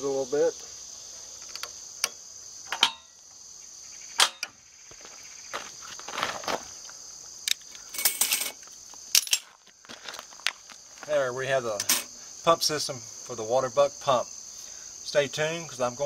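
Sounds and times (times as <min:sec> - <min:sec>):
insects chirring: 0:00.0 - 0:16.0
metal tools clicking and knocking: 0:01.4 - 0:03.1, 0:08.0 - 0:09.6.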